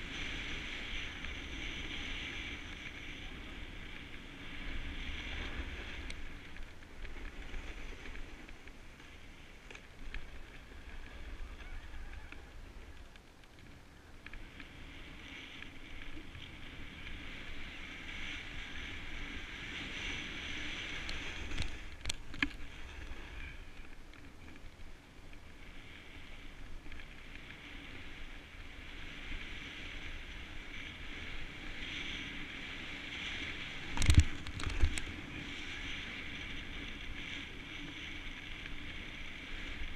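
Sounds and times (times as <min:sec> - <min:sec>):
snowboard scraping on snow: 0:00.0 - 0:13.0, 0:14.4 - 0:39.9
wind on microphone: 0:00.0 - 0:39.9.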